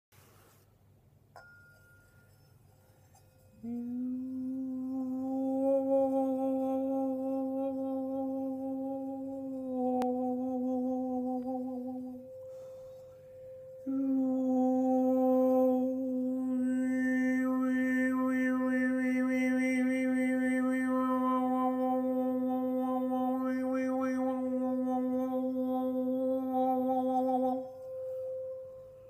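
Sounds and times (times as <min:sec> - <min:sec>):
singing bowl ringing: 0:01.4 - 0:29.0
man humming low drone: 0:03.6 - 0:12.8, 0:13.8 - 0:28.0.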